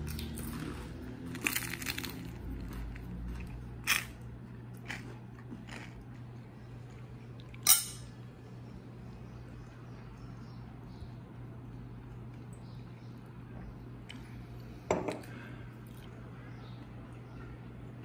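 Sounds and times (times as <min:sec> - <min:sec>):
chewing crusty bread: 0:00.0 - 0:07.6.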